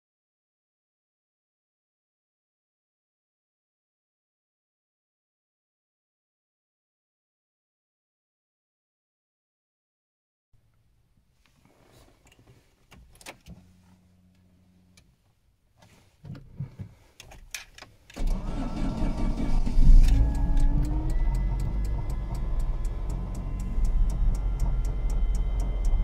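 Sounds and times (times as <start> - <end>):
car engine starting and idling: 16.3 - 26.0.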